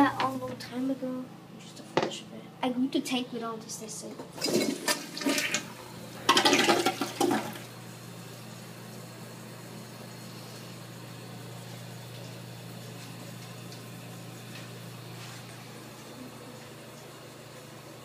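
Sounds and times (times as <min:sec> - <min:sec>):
toilet flushing: 0:04.3 - 0:14.7.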